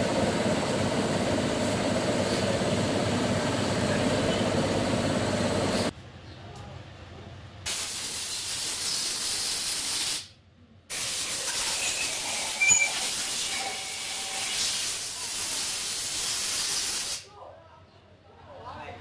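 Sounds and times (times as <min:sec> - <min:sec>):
loud steady hissing: 0:07.7 - 0:10.3, 0:10.9 - 0:17.3.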